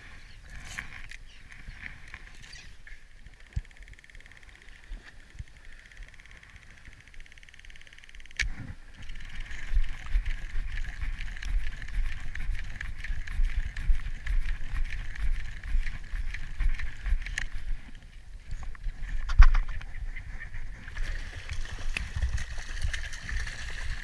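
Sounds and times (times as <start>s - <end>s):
fishing reel ticking: 0.6s - 18.8s.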